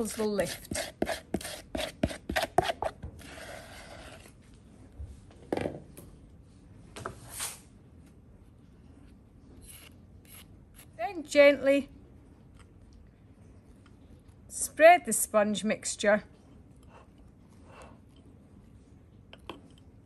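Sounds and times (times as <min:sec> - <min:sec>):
spatula scraping: 0:00.0 - 0:04.4, 0:09.6 - 0:11.0.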